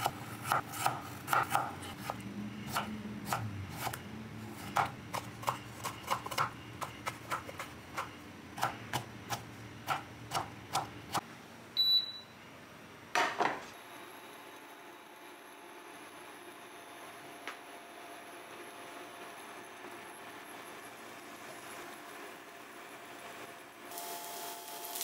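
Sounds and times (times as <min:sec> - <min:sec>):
knife chopping on wooden board: 0:00.0 - 0:04.0, 0:04.6 - 0:10.9
faint hum with high whine: 0:00.0 - 0:25.0
short high beep: 0:11.8 - 0:12.4.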